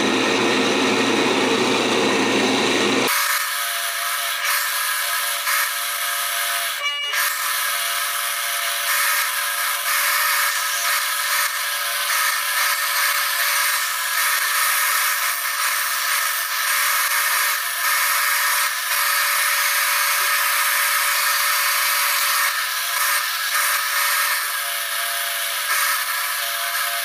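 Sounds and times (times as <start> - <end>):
disc sander whining: 4.4 - 27.0.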